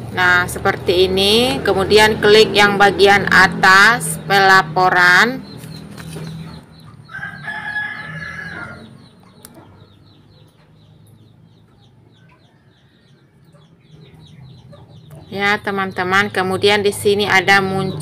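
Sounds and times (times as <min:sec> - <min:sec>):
rooster crowing: 0:07.1 - 0:09.1.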